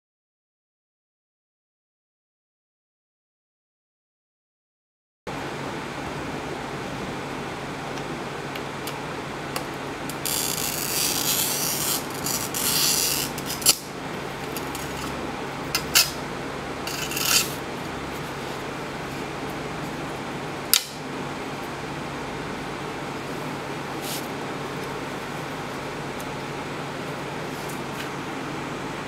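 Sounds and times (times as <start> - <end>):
low room hum: 5.3 - 29.0
glass cutter scoring rasp: 10.2 - 13.9, 14.6 - 15.2, 16.8 - 17.6.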